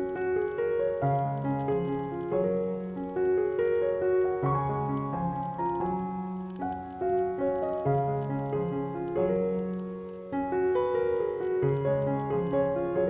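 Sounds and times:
slow piano music: 0:00.0 - 0:13.0.

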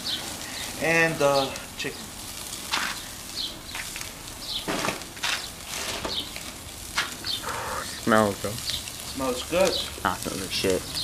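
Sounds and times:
meat sizzling on charcoal grill: 0:00.0 - 0:11.0.

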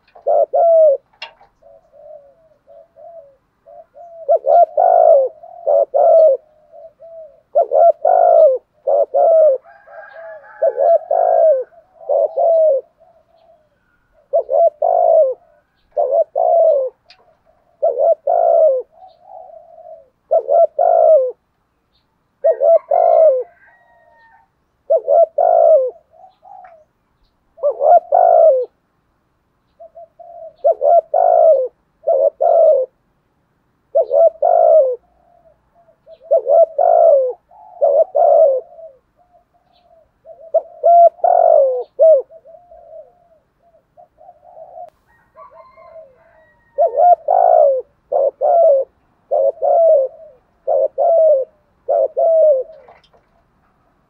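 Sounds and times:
dove cooing: 0:00.0 - 0:21.5, 0:22.4 - 0:27.0, 0:27.6 - 0:28.8, 0:29.7 - 0:33.0, 0:33.8 - 0:53.6
small birds chirping: 0:10.0 - 0:20.1, 0:34.0 - 0:45.0.

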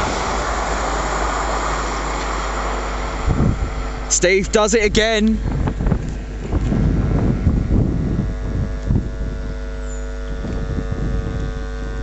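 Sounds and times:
steady electrical hum: 0:00.0 - 0:12.0
wind on microphone: 0:03.1 - 0:04.1, 0:04.8 - 0:12.0.

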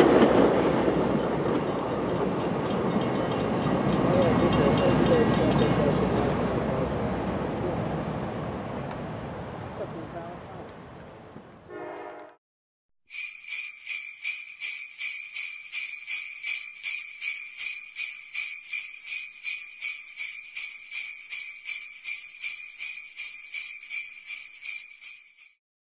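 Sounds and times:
sleigh bells shaking: 0:13.1 - 0:25.6.

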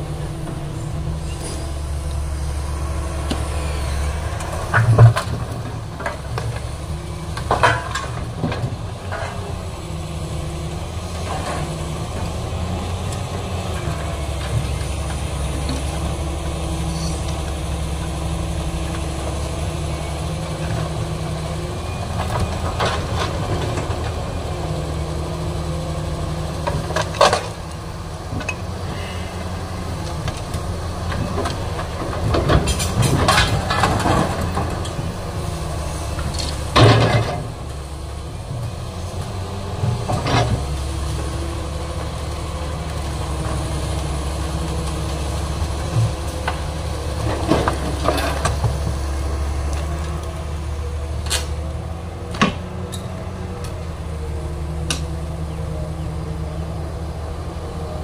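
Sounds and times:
excavator engine droning: 0:00.0 - 0:58.0
scrap metal clanking and crashing: 0:07.3 - 0:09.6, 0:31.1 - 0:35.1, 0:36.0 - 0:37.6.

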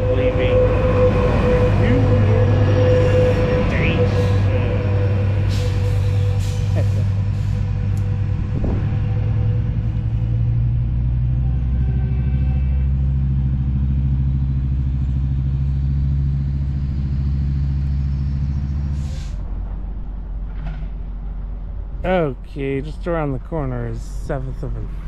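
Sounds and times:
rising whine: 0:00.0 - 0:19.0
diesel locomotive engine drone: 0:00.0 - 0:25.0.

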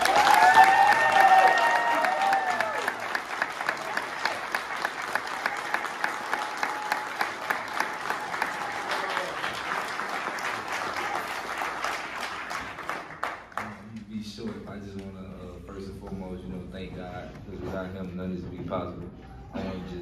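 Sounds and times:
small group clapping: 0:00.0 - 0:15.2.

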